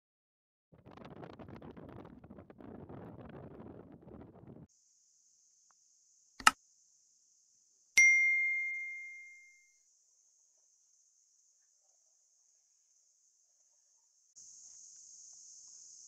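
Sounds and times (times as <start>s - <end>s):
bright bell ding: 8.0s - 9.6s.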